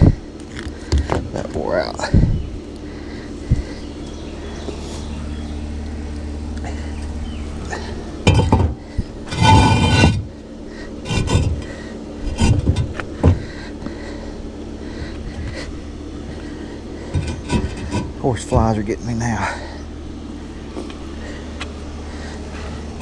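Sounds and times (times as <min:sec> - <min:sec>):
steady low hum: 0:00.0 - 0:23.0
concrete blocks knocking: 0:08.3 - 0:08.8
block scraping on block: 0:08.3 - 0:10.3, 0:11.1 - 0:11.7.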